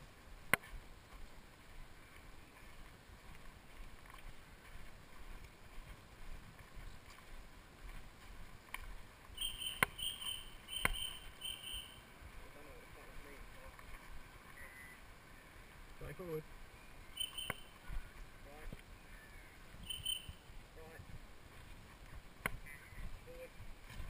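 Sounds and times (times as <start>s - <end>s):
footsteps on woodland path: 0.0s - 24.0s
high-pitched chirp: 9.4s - 12.0s, 17.1s - 17.8s, 19.8s - 20.4s.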